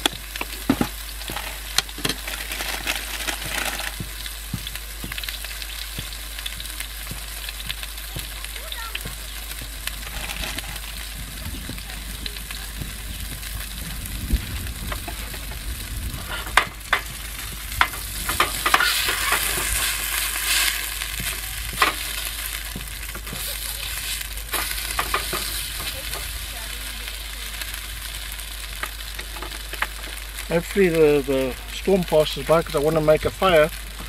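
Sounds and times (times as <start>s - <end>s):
burger patty sizzling in pan: 0.0s - 34.0s
utensil clicking on pan: 24.0s - 26.4s.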